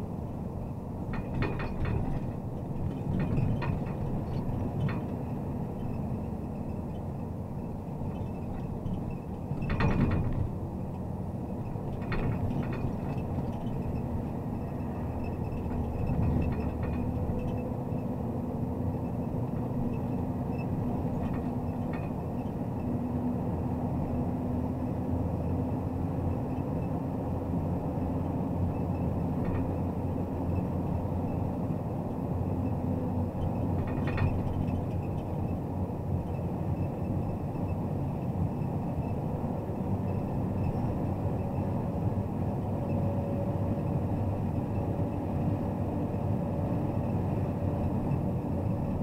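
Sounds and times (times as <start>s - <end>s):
road noise: 0.0s - 49.0s
light clicks and rattles: 1.1s - 7.1s, 8.1s - 17.7s, 19.1s - 22.6s, 28.8s - 29.8s, 33.4s - 35.5s.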